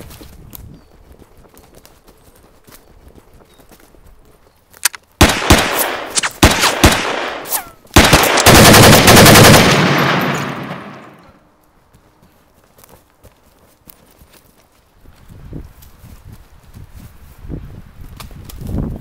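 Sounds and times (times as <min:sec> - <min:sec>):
single gunshots with echo: 0:05.2 - 0:09.0
automatic gunfire burst: 0:05.2 - 0:11.2.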